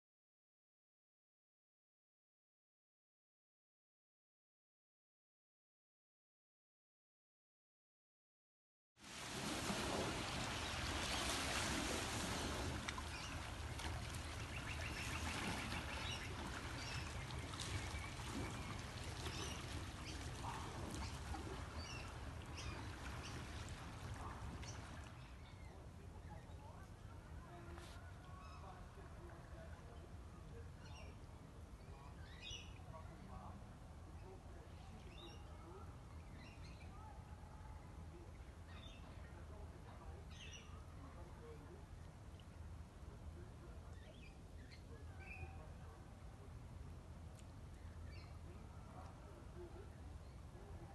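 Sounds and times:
low rumble and hiss: 0:09.1 - 0:50.9
birds calling: 0:12.7 - 0:25.8.

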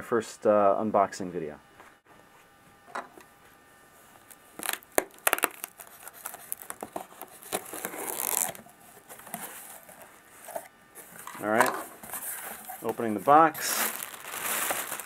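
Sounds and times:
packing tape ripping: 0:04.3 - 0:08.6, 0:12.2 - 0:15.0.

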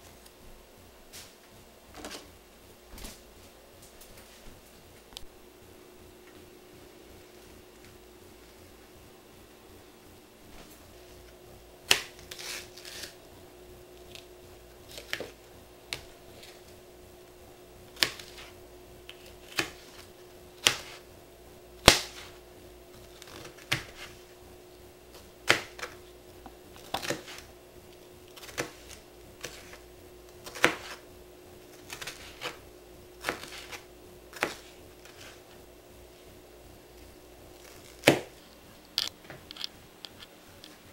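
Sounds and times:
knife striking plastic cutting board: 0:19.5 - 0:21.0, 0:21.8 - 0:22.3, 0:23.2 - 0:24.2, 0:25.4 - 0:26.0, 0:30.4 - 0:31.0, 0:37.9 - 0:38.3.

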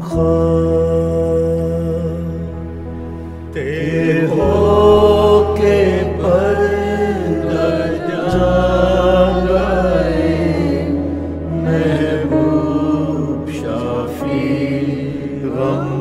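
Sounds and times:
low instrumental accompaniment: 0:00.0 - 0:16.0
person singing a hymn: 0:00.0 - 0:16.0.

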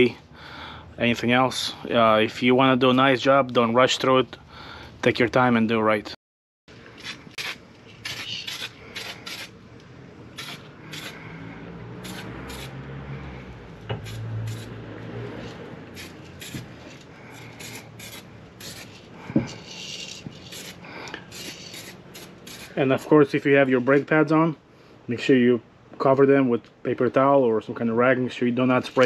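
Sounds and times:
spray can rattling: 0:17.6 - 0:22.7.

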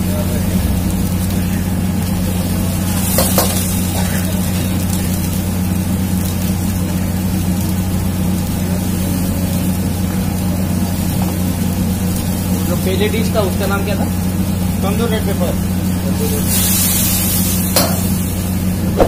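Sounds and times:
oil sizzling in a wok: 0:00.0 - 0:19.0
low hum: 0:15.6 - 0:19.0.

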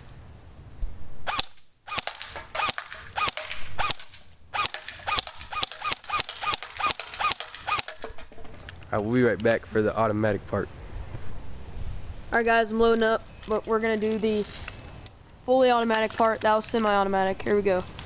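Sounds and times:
airsoft rifle single shots: 0:01.3 - 0:08.1.

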